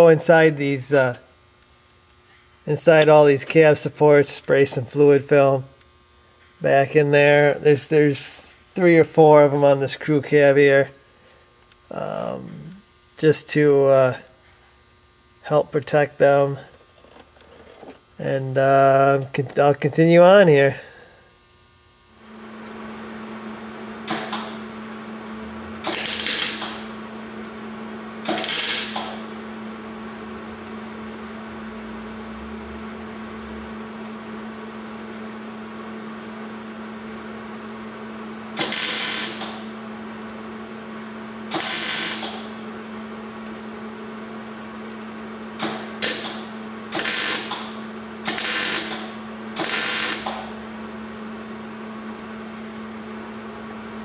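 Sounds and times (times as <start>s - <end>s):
steady low hum: 0.0s - 54.0s
welding arc crackling: 22.2s - 29.6s, 38.5s - 39.8s, 41.5s - 42.6s, 45.6s - 50.7s.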